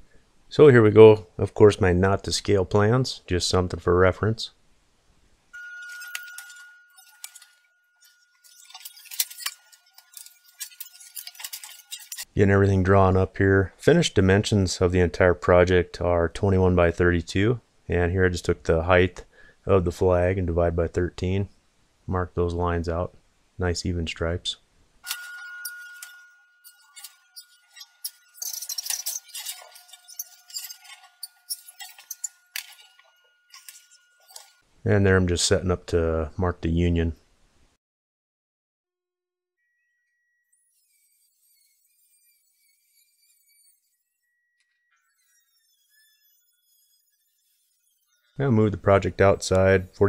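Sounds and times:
metal tools clinking on sheet steel: 0:05.6 - 0:12.4, 0:25.0 - 0:34.6.

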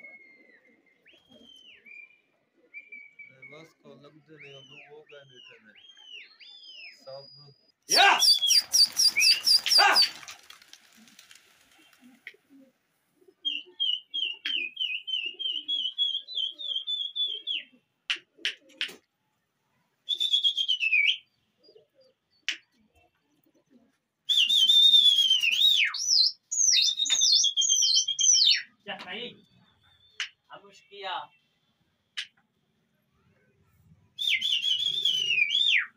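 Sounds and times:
human whistling warbling: 0:07.9 - 0:10.1, 0:20.1 - 0:21.2, 0:24.3 - 0:26.0, 0:34.2 - 0:35.9
sharp cracks: 0:08.2 - 0:12.4.

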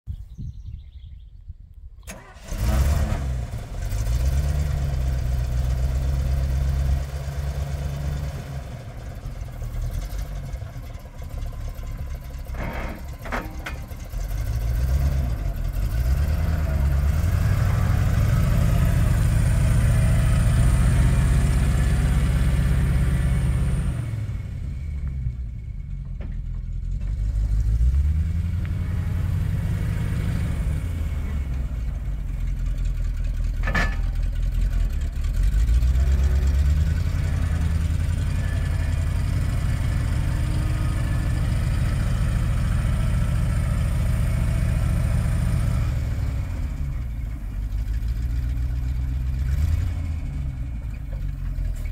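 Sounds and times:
truck engine starting and revving: 0:02.0 - 0:51.9.

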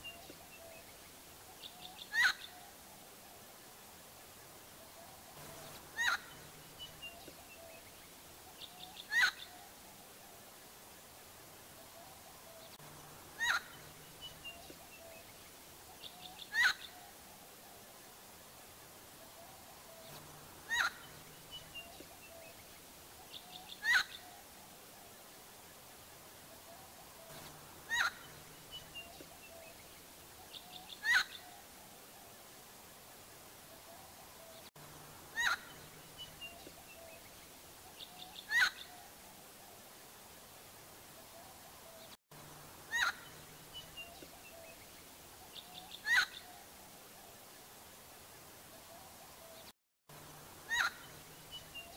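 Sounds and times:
bird harsh calls: 0:01.6 - 0:02.6, 0:05.4 - 0:07.8, 0:08.6 - 0:09.7, 0:13.3 - 0:15.2, 0:16.0 - 0:17.1, 0:19.4 - 0:22.6, 0:23.2 - 0:24.4, 0:26.7 - 0:29.8, 0:30.4 - 0:31.6, 0:35.3 - 0:37.2, 0:38.0 - 0:39.1, 0:42.9 - 0:44.8, 0:45.5 - 0:46.6, 0:50.6 - 0:51.9.

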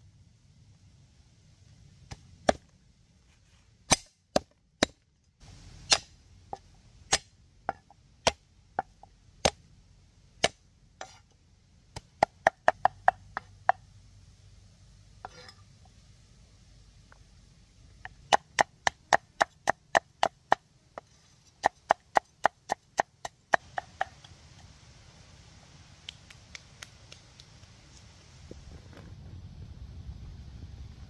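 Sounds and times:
blade chopping strokes: 0:05.8 - 0:07.3.

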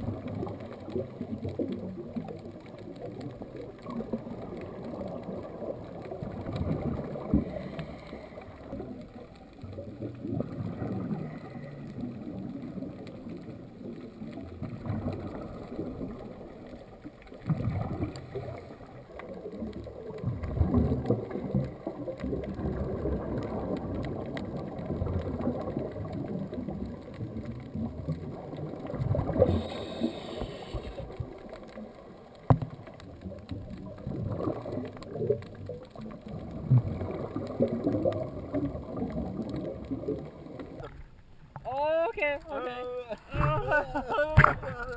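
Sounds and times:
underwater rumble and gurgle: 0:00.0 - 0:41.7, 0:43.2 - 0:44.9
brief hiss: 0:29.4 - 0:31.1.

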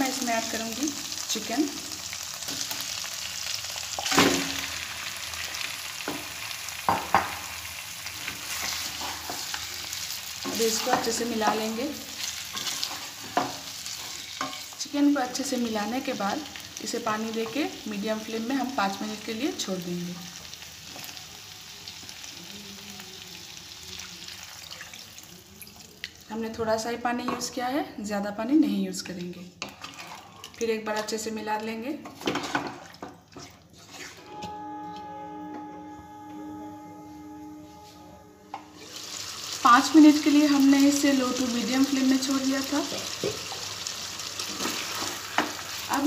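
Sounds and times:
chicken sizzling in hot oil: 0:00.0 - 0:25.4, 0:38.8 - 0:46.0.

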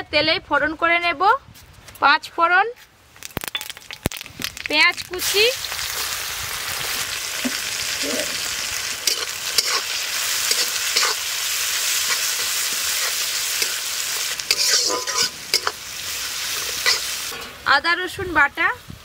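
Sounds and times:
onions sizzling in hot oil: 0:03.2 - 0:19.0
spatula scraping pan: 0:09.0 - 0:11.3, 0:11.9 - 0:15.8.

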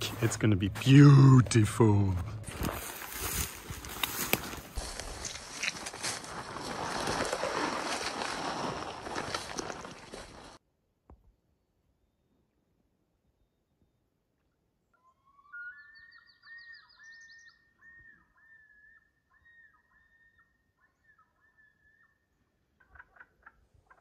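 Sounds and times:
loon calling: 0:14.9 - 0:22.2.

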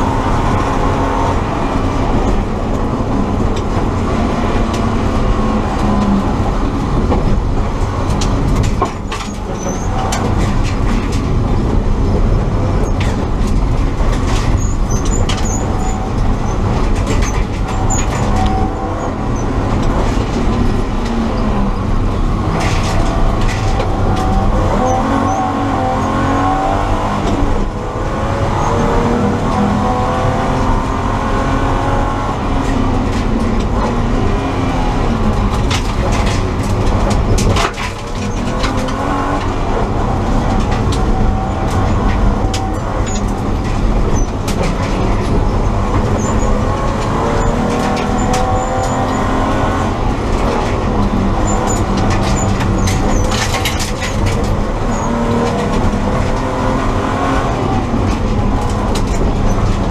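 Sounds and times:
car engine revving: 0:00.0 - 0:59.9
sharp knocks and rattles: 0:35.1 - 0:56.9.

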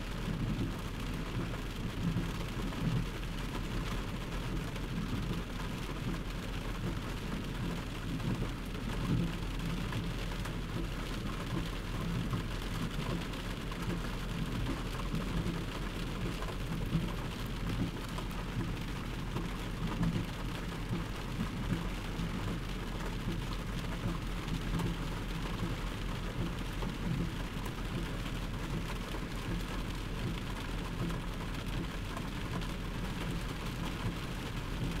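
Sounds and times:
constant low rumble: 0:00.0 - 0:35.0
heavy rain pouring: 0:00.0 - 0:35.0.

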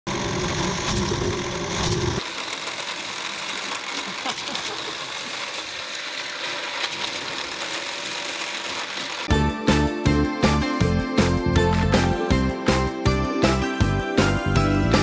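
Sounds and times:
toy motor whirring: 0:00.1 - 0:09.3.

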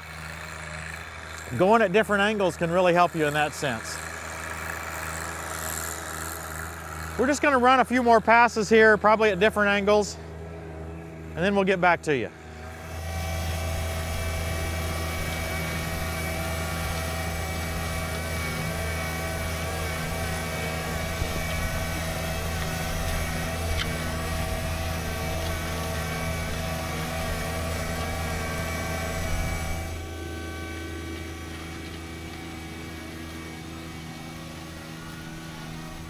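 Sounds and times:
tractor diesel engine under load: 0:00.0 - 0:36.0
wavering whine: 0:00.0 - 0:36.0.

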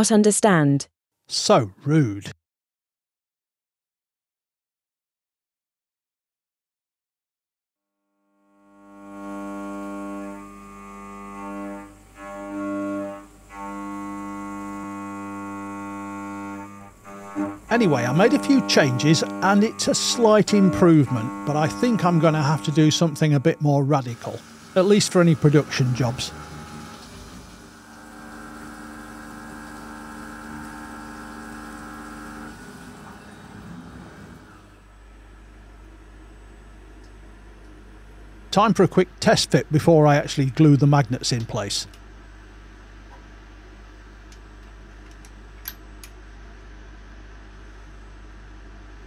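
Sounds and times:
milling machine droning tone: 0:08.2 - 0:41.6
coolant hissing and splashing: 0:24.0 - 0:33.6.

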